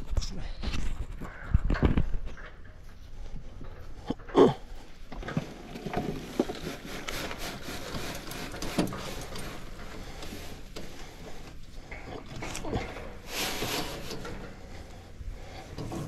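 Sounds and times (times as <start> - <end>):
soil scraping out of wheelbarrow: 5.2 - 10.6, 12.4 - 14.6.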